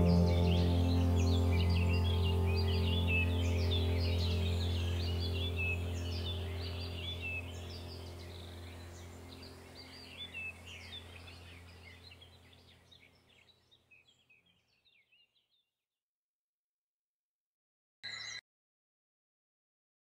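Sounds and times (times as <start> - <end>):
low steady hum: 0.0 - 13.2
small birds chirping: 0.0 - 15.7.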